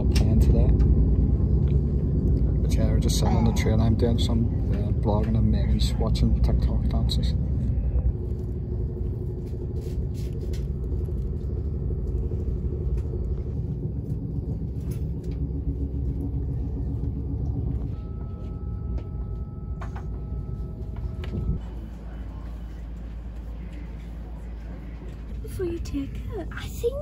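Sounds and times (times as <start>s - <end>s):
faint high whine: 0.0s - 27.0s
train wheels rumbling on track: 0.0s - 27.0s.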